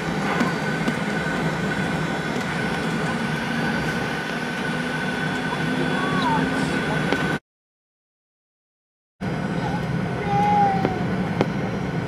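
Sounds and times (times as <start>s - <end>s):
jet turbofan whine: 0.0s - 7.4s, 9.2s - 12.0s
low cabin hum and rumble: 9.2s - 12.0s.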